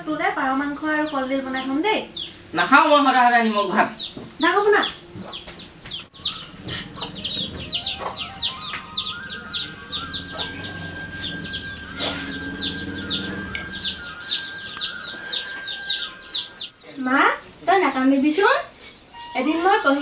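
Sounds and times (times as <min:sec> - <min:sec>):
small birds chirping: 0:00.0 - 0:20.0
steady high tone: 0:06.1 - 0:16.8.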